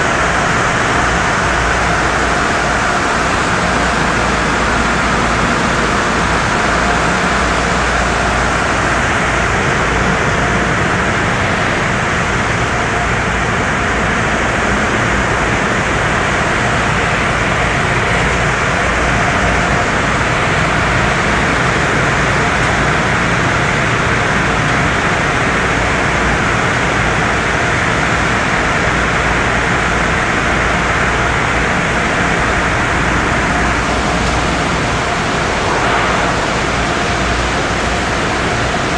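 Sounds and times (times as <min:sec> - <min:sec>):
low machinery rumble: 0:32.3 - 0:38.9.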